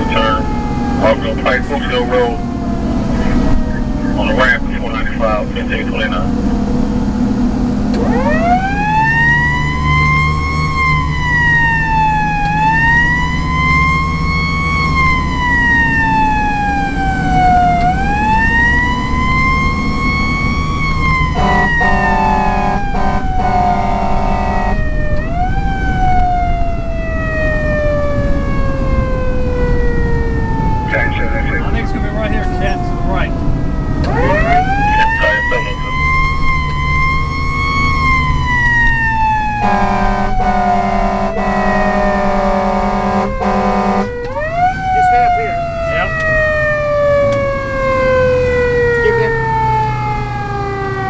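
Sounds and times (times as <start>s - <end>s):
diesel engine drone: 0.0s - 51.0s
mechanical siren wailing: 0.0s - 51.0s
air horn blasts: 21.3s - 24.8s, 39.6s - 44.2s.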